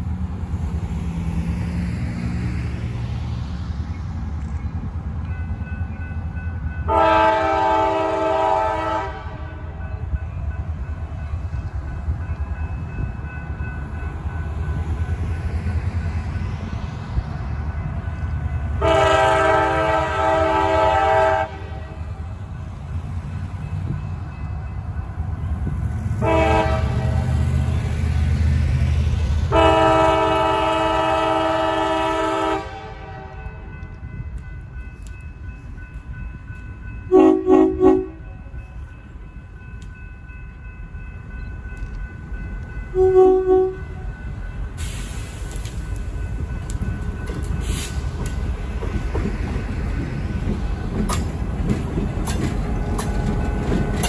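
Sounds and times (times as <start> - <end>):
locomotive air horn blasts: 6.9 - 9.8, 18.8 - 22.1, 26.2 - 27.3, 29.5 - 33.6, 37.1 - 38.4, 42.9 - 44.0.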